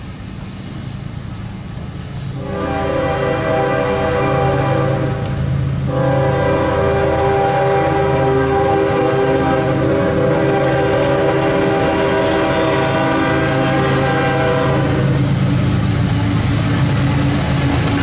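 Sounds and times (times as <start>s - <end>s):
low rumble of train: 0.0s - 18.0s
locomotive air horn blast: 2.3s - 15.4s.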